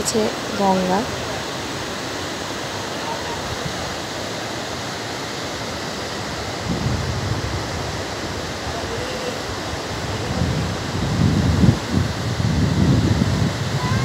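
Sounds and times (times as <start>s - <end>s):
river rushing over rocks: 0.0s - 14.0s
wind buffeting microphone: 6.0s - 14.0s.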